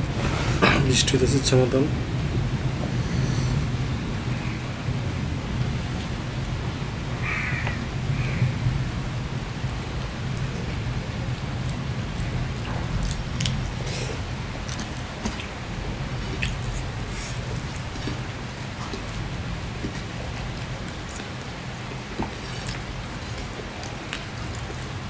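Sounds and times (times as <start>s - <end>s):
heavy rain: 0.0s - 25.0s.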